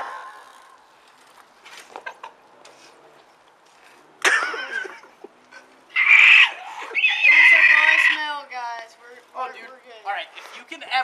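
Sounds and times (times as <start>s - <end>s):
boy yelling: 7.1s - 11.0s.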